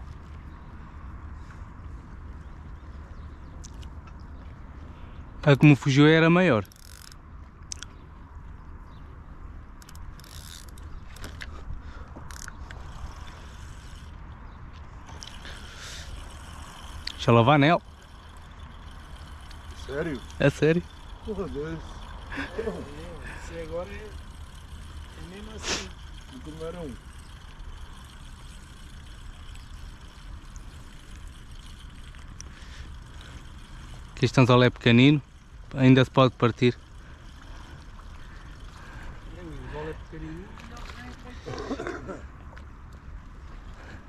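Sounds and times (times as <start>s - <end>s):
fishing reel clicking: 5.8s - 7.8s, 9.8s - 11.5s, 12.2s - 14.2s, 15.1s - 40.7s
sea water lapping: 36.7s - 43.8s.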